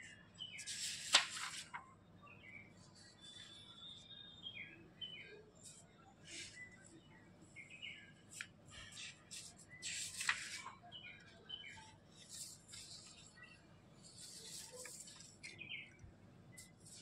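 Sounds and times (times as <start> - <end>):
small birds chirping: 0.0 - 17.0
paper sheets rustling: 0.6 - 1.9, 8.3 - 10.8, 12.1 - 13.4, 14.0 - 15.6.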